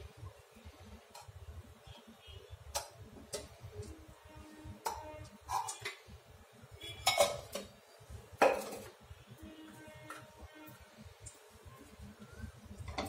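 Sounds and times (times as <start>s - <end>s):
steel kitchenware clinking: 4.8s - 6.0s, 6.9s - 7.7s.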